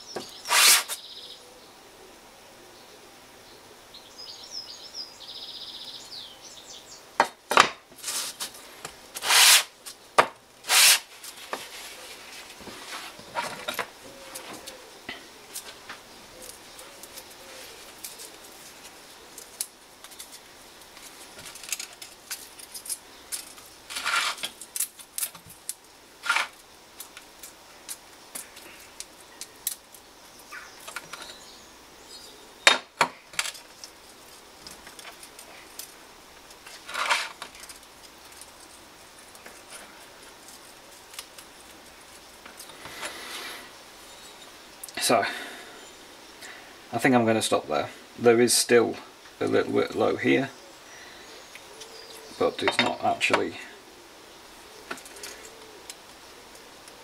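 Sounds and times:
scraping on sandpaper: 0.2s - 1.0s, 8.0s - 9.8s, 10.6s - 13.5s, 23.9s - 24.6s.

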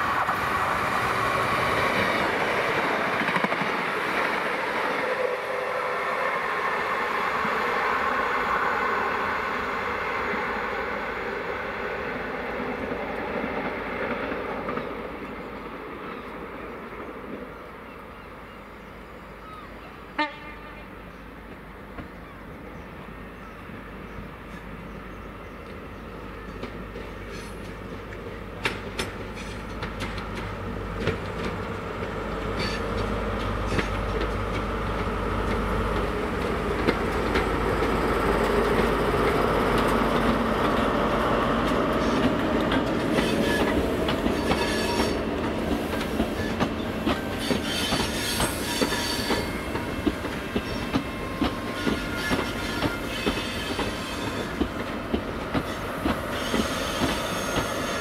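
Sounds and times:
diesel train engine hum: 0.0s - 58.0s
train wheels clacking over rail joints: 26.5s - 40.9s, 41.6s - 58.0s
high-pitched wheel squeal: 43.2s - 45.2s, 47.3s - 49.6s, 55.7s - 58.0s.

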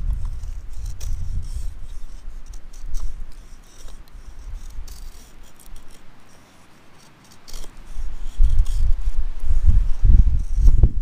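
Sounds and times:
wind buffeting microphone: 0.0s - 5.3s, 7.8s - 11.0s
knife scraping wood: 0.0s - 10.8s.

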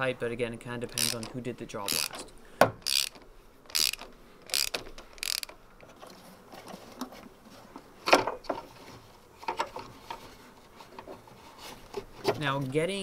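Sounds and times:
hand ratchet clicking: 0.9s - 5.6s.

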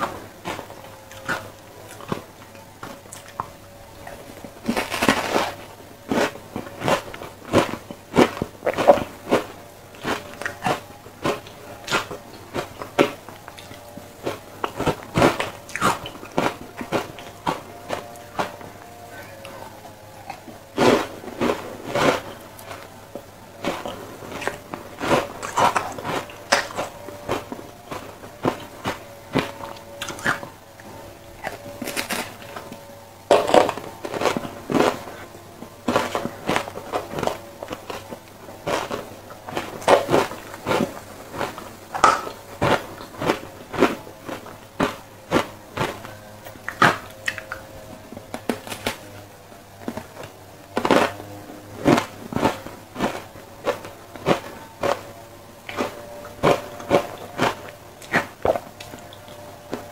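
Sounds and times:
quiet chewing: 0.0s - 59.9s
crunching ice: 3.2s - 35.2s, 48.3s - 49.1s.

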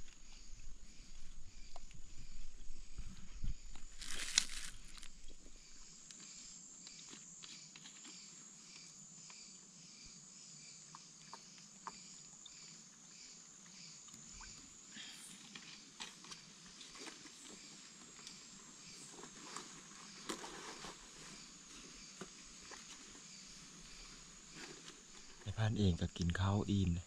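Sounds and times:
insect chirping: 0.0s - 27.0s
plastic bag crackling: 4.0s - 5.1s.

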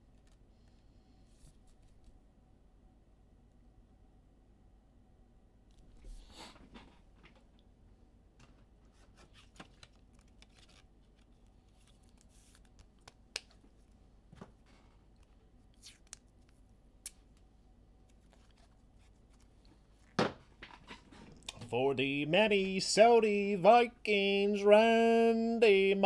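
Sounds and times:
cards and packaging rustling: 8.9s - 13.6s.

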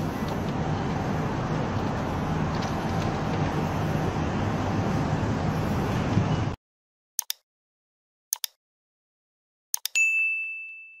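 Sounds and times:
outdoor noise: 0.0s - 6.6s
mouse click sound effects: 9.8s - 10.0s
bell ding: 9.9s - 11.0s.

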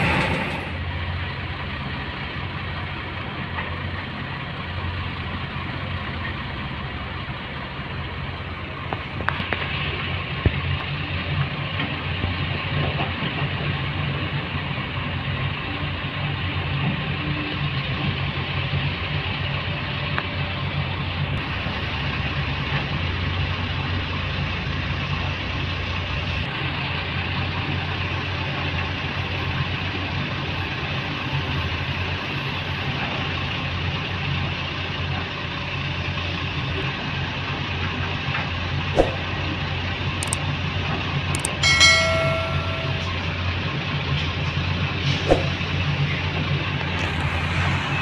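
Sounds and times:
diesel truck engine drone: 0.0s - 48.0s
sharp clicks: 40.2s - 40.4s, 41.4s - 41.6s
short high-pitched tone: 41.4s - 43.3s.

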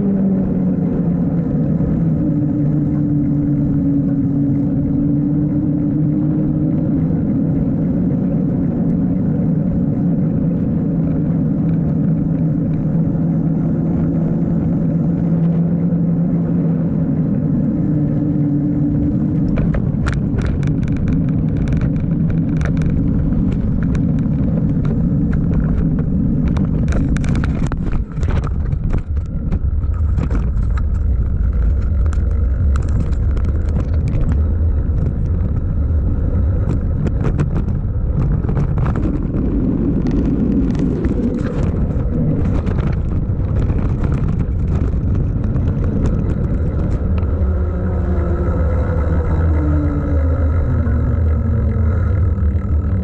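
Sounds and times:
bike tyres humming on pavement: 0.0s - 53.0s
wind rumble on microphone: 0.0s - 53.0s
bike clicks and rattles: 18.8s - 53.0s.

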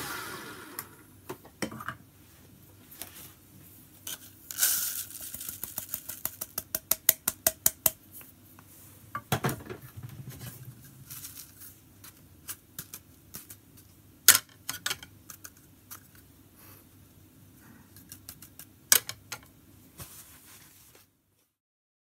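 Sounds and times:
coffee grounds pouring: 4.1s - 6.2s.

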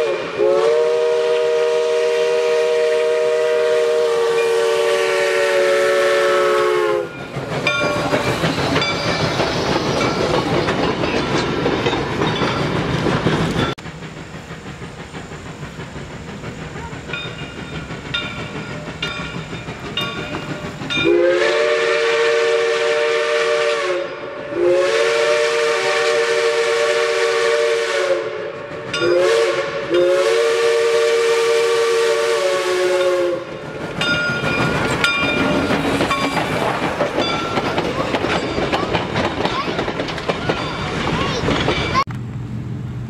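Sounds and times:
steam locomotive whistle blasts: 0.0s - 8.0s, 20.9s - 33.6s
wheels clacking over rail joints: 6.9s - 21.2s, 33.0s - 42.4s
locomotive bell ringing: 7.0s - 13.8s, 17.0s - 21.4s, 28.9s - 29.3s, 33.0s - 39.7s, 40.3s - 42.1s.

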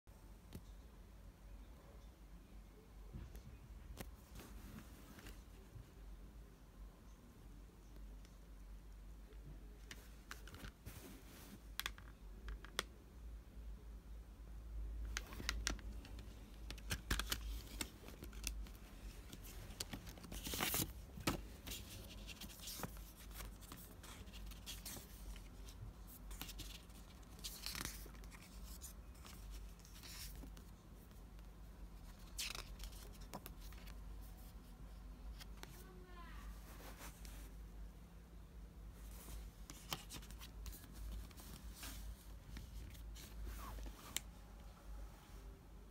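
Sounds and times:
paper booklet rustling: 15.1s - 34.7s, 39.0s - 44.3s.

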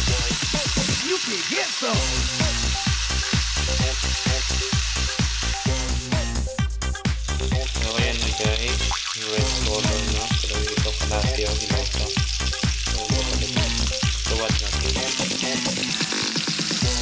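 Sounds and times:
music with steady beat and bass: 0.0s - 1.2s, 2.0s - 17.0s
pork sizzling in grill pan: 0.0s - 17.0s.

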